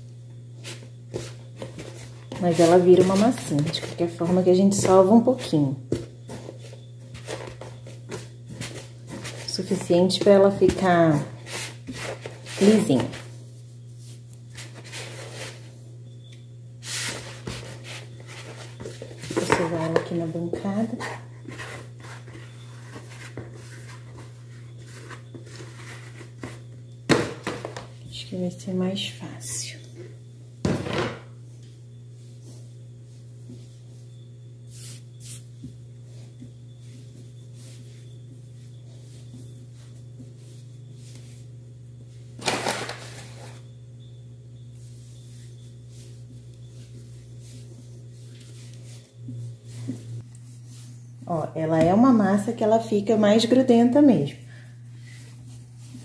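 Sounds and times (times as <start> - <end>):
steady low hum: 0.0 - 56.0
hands kneading sticky dough: 0.4 - 27.0, 32.2 - 42.4, 44.6 - 52.5.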